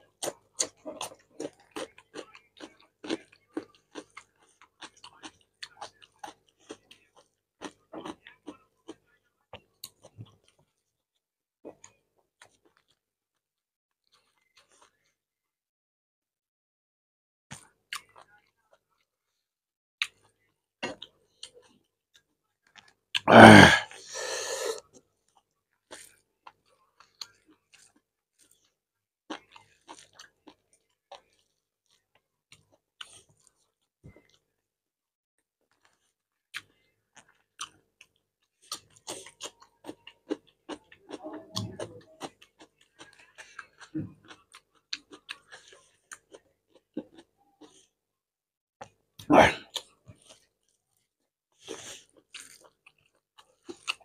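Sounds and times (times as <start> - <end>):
man eating by hand: 0.0 - 11.0, 20.0 - 34.6, 35.6 - 48.0, 48.8 - 54.0
loud burp: 23.2 - 23.9, 49.3 - 49.7.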